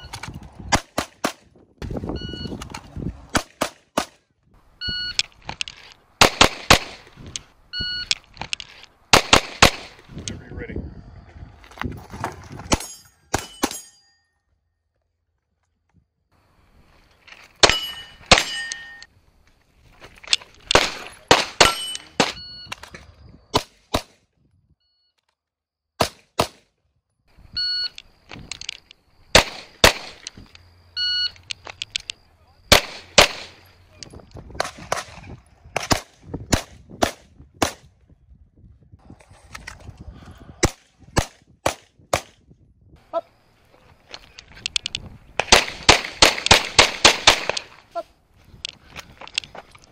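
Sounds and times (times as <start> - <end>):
pistol shots: 6.2 - 7.1, 9.1 - 10.0, 20.7 - 22.4, 26.0 - 26.6, 29.3 - 30.3, 32.7 - 33.6, 45.4 - 47.8
steel targets ringing: 12.8 - 14.4, 17.6 - 19.1, 21.5 - 22.4.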